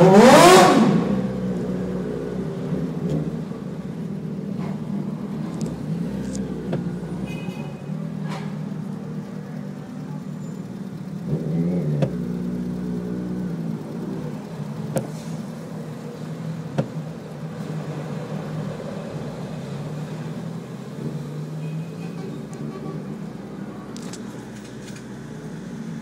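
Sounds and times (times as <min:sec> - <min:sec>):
motorcycle engines idling: 0:00.0 - 0:26.0
motorcycle revving: 0:00.0 - 0:26.0.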